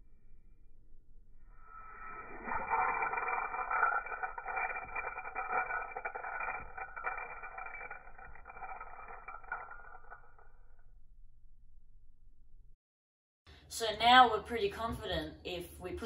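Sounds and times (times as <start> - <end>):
ball bearing spinning with ticks: 1.7 - 11.2.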